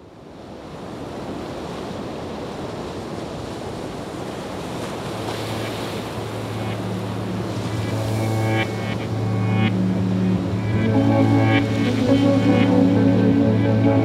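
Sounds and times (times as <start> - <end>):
ocean surf: 0.0 - 14.0
music low sustained tone: 6.1 - 14.0.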